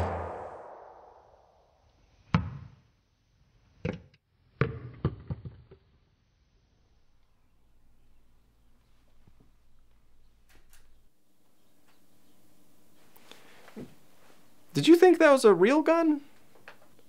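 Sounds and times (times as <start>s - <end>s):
loud shot echoing: 0.0s - 1.4s.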